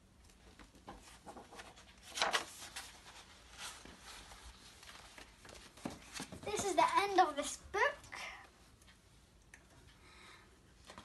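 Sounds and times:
book pages rustling: 0.3 - 7.2.

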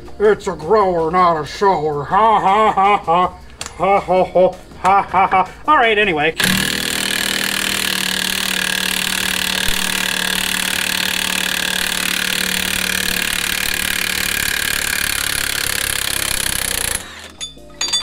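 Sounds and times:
impact wrench hammering: 6.4 - 18.0.

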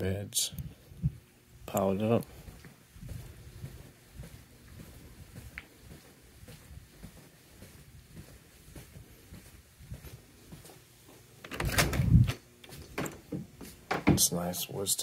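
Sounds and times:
footsteps on a hard floor: 2.3 - 11.3, 12.7 - 14.2.

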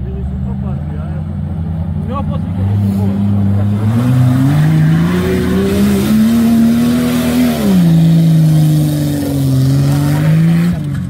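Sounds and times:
engine revving hard: 2.4 - 10.9.

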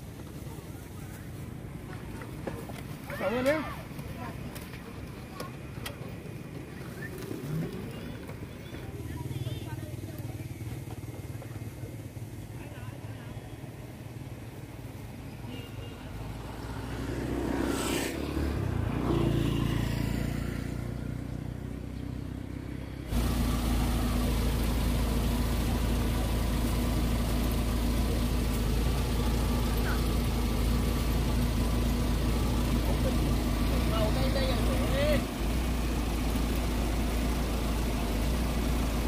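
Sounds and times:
vehicle engine passing: 16.2 - 39.0
steady engine drone: 23.0 - 39.0.

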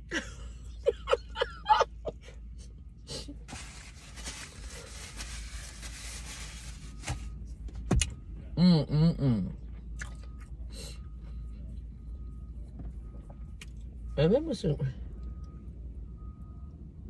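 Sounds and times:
woman humming while eating: 8.6 - 9.6.

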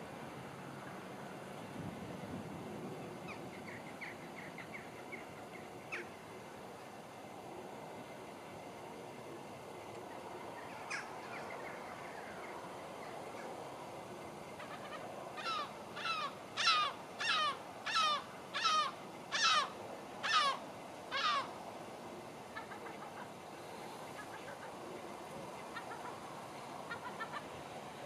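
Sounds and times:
faint background hiss: 0.0 - 28.0
crow cawing: 14.6 - 21.5.

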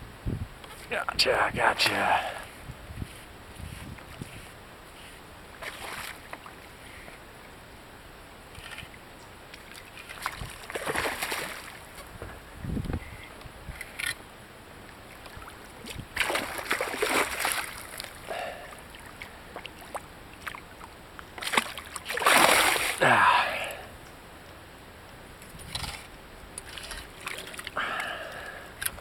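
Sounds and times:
fish thrashing and splashing: 10.0 - 11.9, 16.2 - 18.2, 21.4 - 23.0, 25.7 - 28.1.

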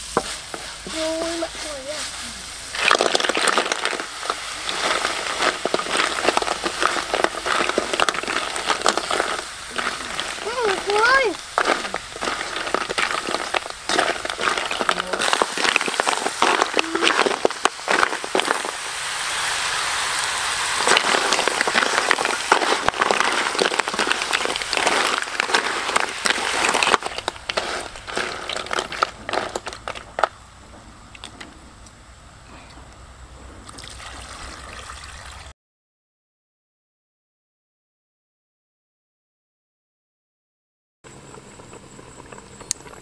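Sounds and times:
spatula scraping a wok: 0.0 - 0.9, 1.5 - 20.0, 20.6 - 30.2
sizzling: 0.0 - 32.2
shells clattering in a pan: 2.7 - 18.8, 20.8 - 30.3
water poured into wok: 11.4 - 29.7.

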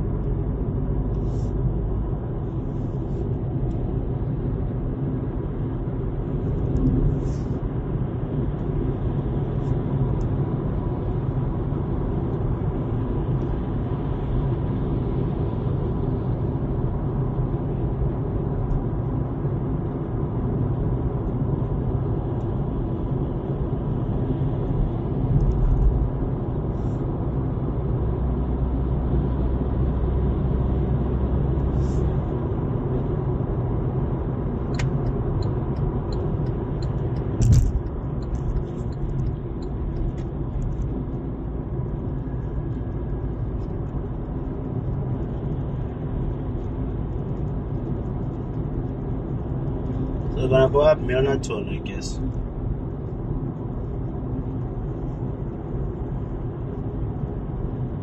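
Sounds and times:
car tyres and engine rumble: 0.0 - 58.0
sharp thump: 37.4 - 37.8.

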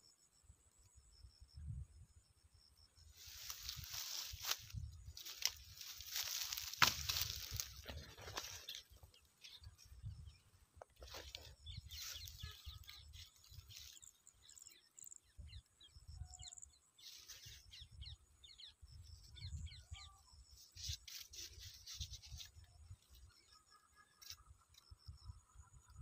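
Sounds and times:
small birds chirping: 3.1 - 26.0
wind rumble on microphone: 3.6 - 5.2, 9.8 - 10.5, 18.8 - 20.1.

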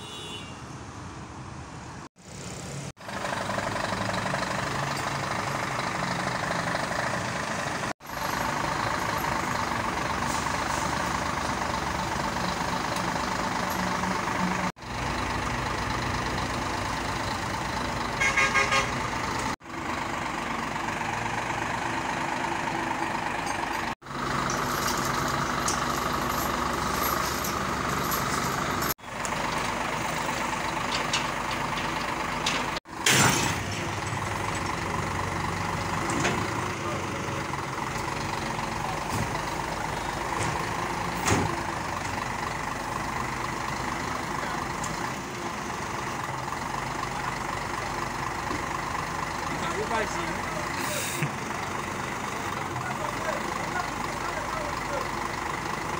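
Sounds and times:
diesel truck engine running: 2.1 - 55.9
loader crane working: 2.2 - 55.9
short horn toot: 18.2 - 19.0.

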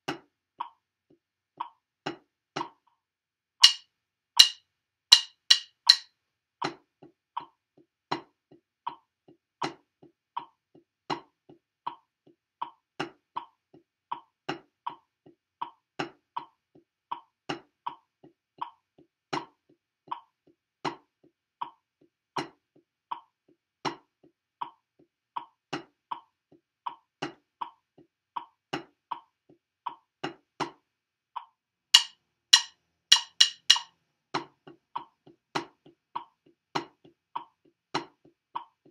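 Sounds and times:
drumsticks on practice pad: 3.6 - 3.8, 4.4 - 6.1, 32.0 - 33.9
sharp count-in clicks: 3.6 - 3.8, 4.4 - 6.0, 32.0 - 33.9.

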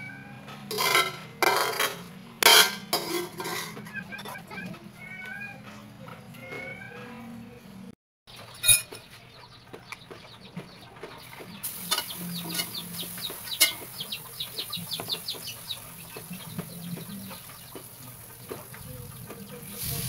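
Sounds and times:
birds chirping: 0.0 - 20.0
wok and utensils clanking: 0.4 - 4.8, 8.4 - 9.2, 11.6 - 20.0.

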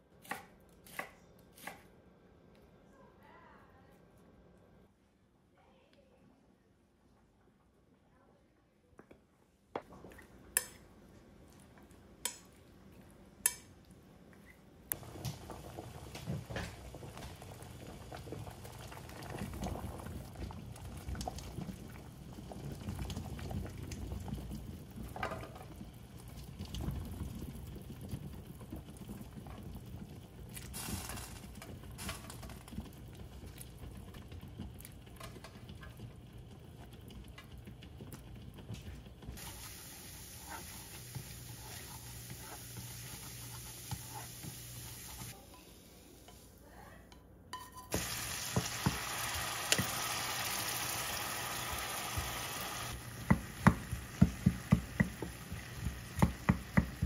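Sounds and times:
soup broth boiling: 14.9 - 46.6, 47.9 - 57.0.

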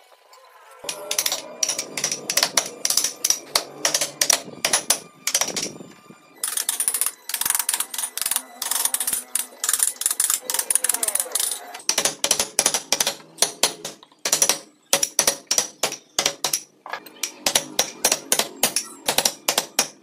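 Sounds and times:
gouges scraping wood: 0.9 - 14.6.

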